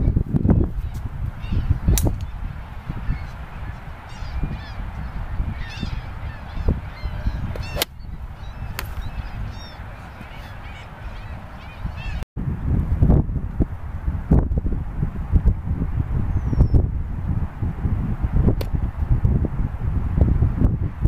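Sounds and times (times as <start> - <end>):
birds calling: 0.0 - 12.2
wind rumble on microphone: 0.0 - 21.0
golf club striking ball: 1.9 - 2.3, 7.5 - 8.0.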